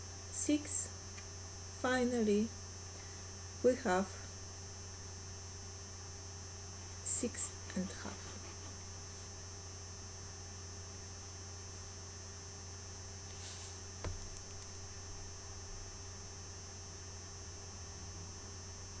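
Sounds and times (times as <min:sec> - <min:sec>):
low electrical hum: 0:00.0 - 0:19.0
soft rustle: 0:13.2 - 0:14.8.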